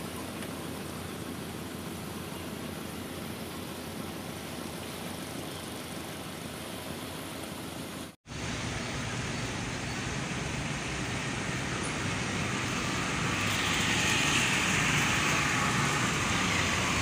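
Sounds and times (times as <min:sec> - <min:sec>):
low engine-like hum: 0:00.0 - 0:17.0
outdoor rushing noise: 0:07.9 - 0:17.0.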